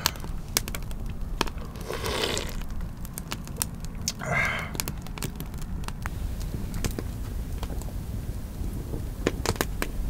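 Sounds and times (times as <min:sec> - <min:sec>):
wood fire crackling: 0:00.0 - 0:10.0
person breathing: 0:04.2 - 0:04.8.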